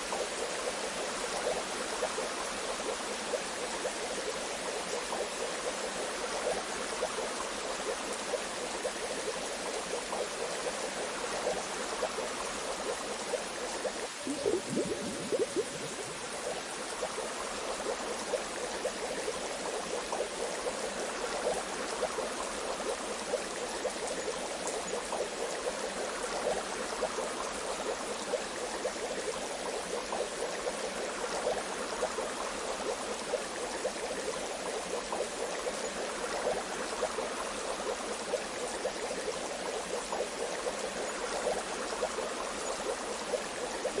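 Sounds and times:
bath water bubbling: 14.0 - 17.2.

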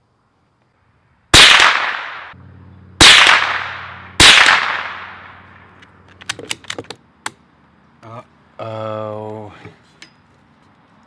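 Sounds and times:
rifle shots: 1.3 - 2.4, 3.0 - 5.7
metallic clicks of rifle bolt: 6.1 - 7.4.

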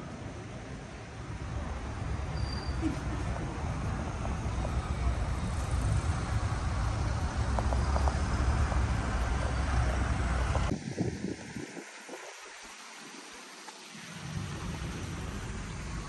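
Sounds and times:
cars and bus passing: 0.0 - 10.7.

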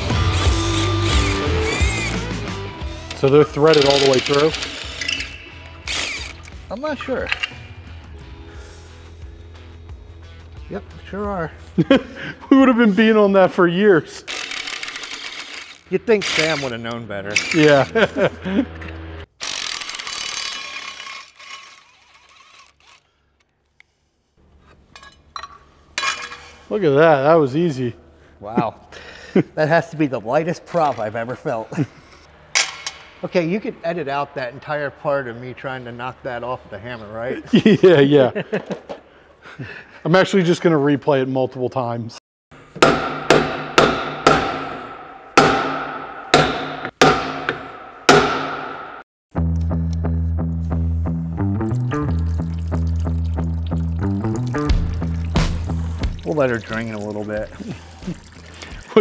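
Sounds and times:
hammer striking metal hub: 42.8 - 49.0.

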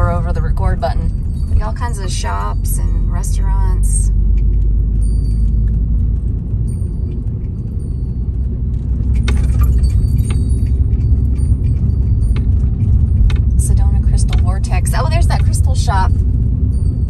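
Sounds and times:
road and engine rumble: 0.0 - 17.0
small metal objects jingling: 4.4 - 14.2.

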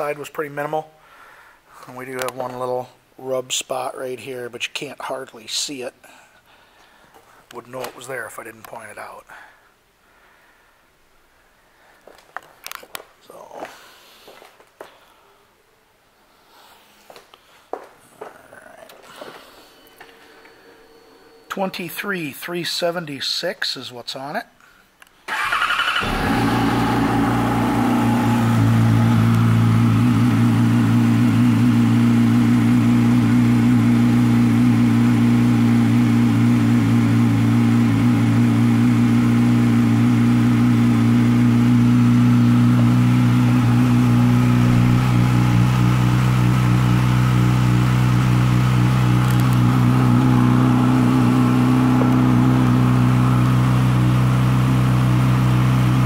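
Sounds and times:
motorcycle engine idling: 25.3 - 56.0.

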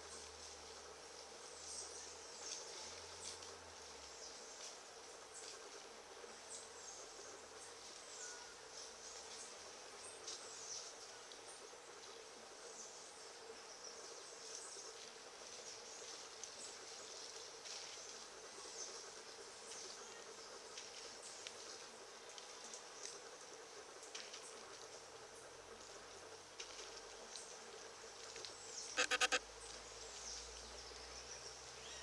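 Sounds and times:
insect drone: 0.0 - 32.0
short high chirps: 29.0 - 29.4.

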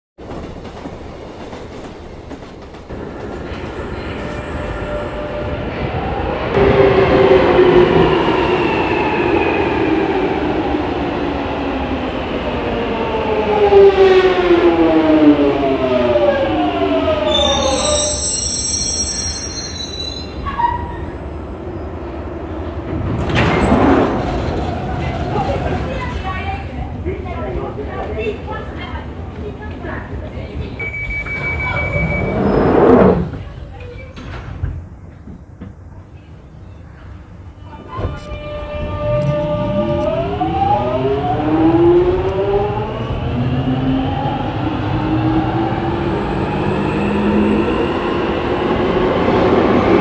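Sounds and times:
high-pitched brake squealing: 3.7 - 5.4, 17.3 - 21.1, 30.8 - 34.2.

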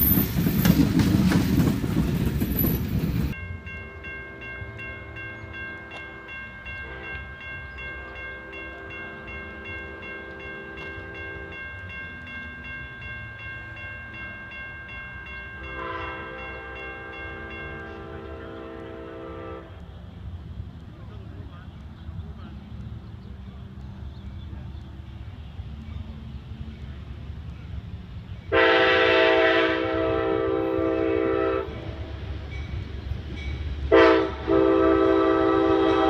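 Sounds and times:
crossing bell ringing: 0.0 - 19.7, 25.2 - 36.0
freight train rumbling: 0.0 - 36.0
distant locomotive horn: 3.6 - 11.8, 15.5 - 20.0, 28.5 - 32.3, 33.9 - 36.0.

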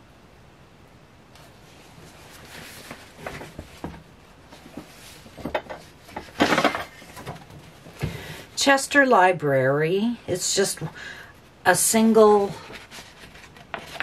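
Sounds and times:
paper pages rustling: 1.4 - 7.8, 12.6 - 14.0.

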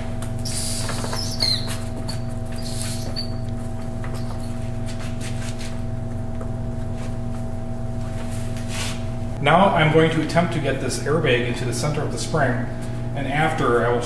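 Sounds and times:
steady hum: 0.0 - 14.0
high rubber squeaks: 0.4 - 5.7
air hissing out of air bag: 0.5 - 1.2.

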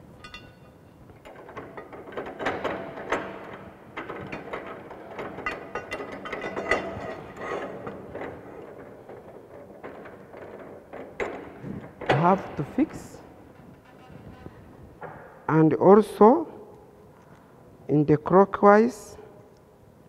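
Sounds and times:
pipe vise ratcheting clicks: 0.0 - 12.7.

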